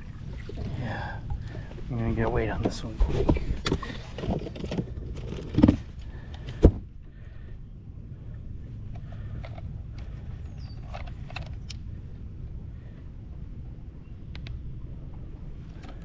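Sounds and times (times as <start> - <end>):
low rumble: 0.0 - 16.0.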